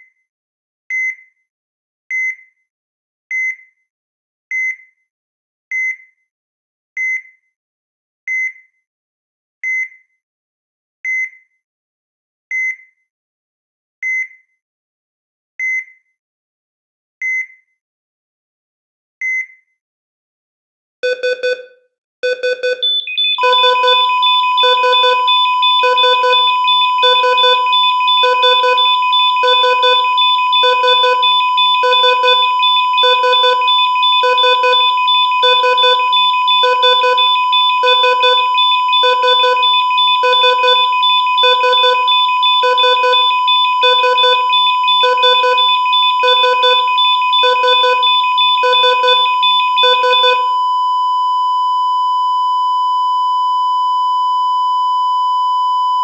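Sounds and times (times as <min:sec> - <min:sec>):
heart monitor beeping: 0:21.0 - 0:56.0
steady alarm tone: 0:22.2 - 0:50.6
flatline tone: 0:22.6 - 0:50.5.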